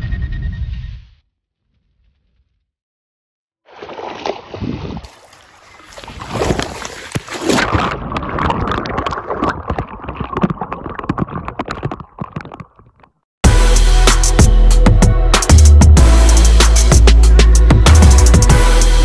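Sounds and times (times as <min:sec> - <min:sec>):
water splashing and sloshing: 0:03.7 - 0:13.2
water gurgling: 0:05.0 - 0:13.2.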